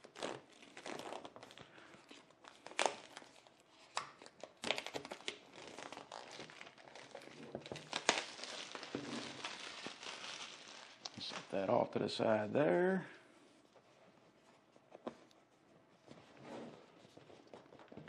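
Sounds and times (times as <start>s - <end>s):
packaging crinkling and tearing: 0.0s - 11.6s.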